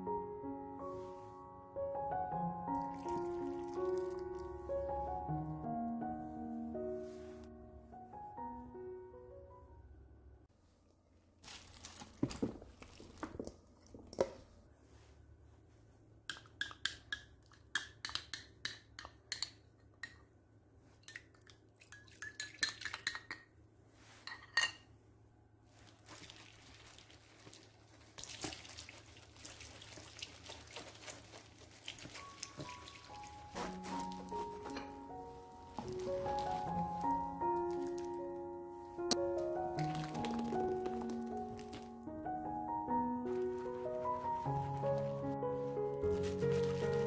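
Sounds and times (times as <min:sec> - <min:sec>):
water pouring: 0:02.7 - 0:04.6, 0:26.0 - 0:34.8, 0:35.7 - 0:38.2, 0:39.7 - 0:41.9, 0:46.1 - 0:47.0.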